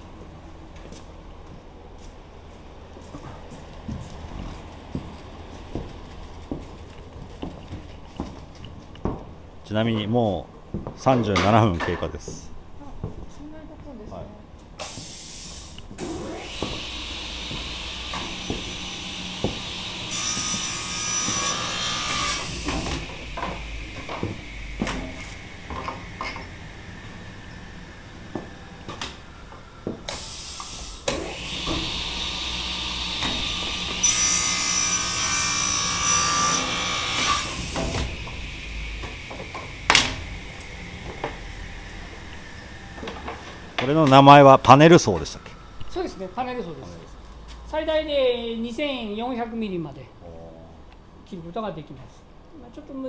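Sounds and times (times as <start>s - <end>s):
panel saw cutting wood: 16.0s - 27.3s, 30.1s - 44.1s.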